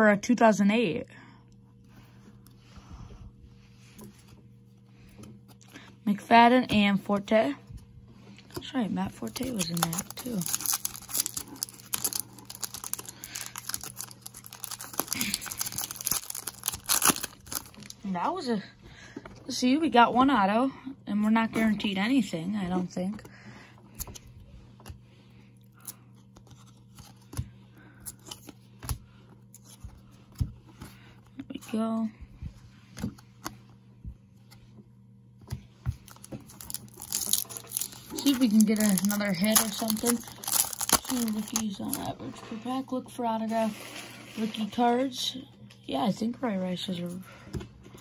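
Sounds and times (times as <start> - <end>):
foil wrapper crinkling and tearing: 9.0 - 18.0, 36.0 - 42.1.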